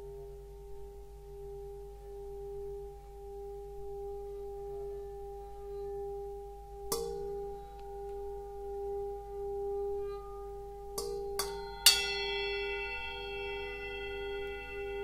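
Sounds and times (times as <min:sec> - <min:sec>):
singing bowl ringing tone: 0:01.3 - 0:15.0
sharp metal strike: 0:11.0 - 0:15.0.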